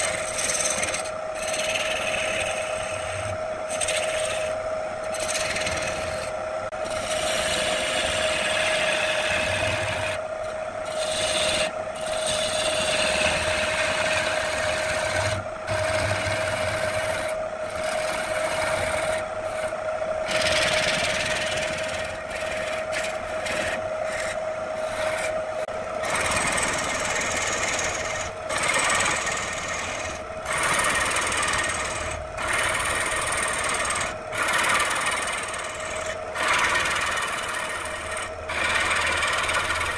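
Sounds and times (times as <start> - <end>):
wood lathe whining: 0.0 - 39.9
gouge cutting wood hiss: 26.0 - 39.9.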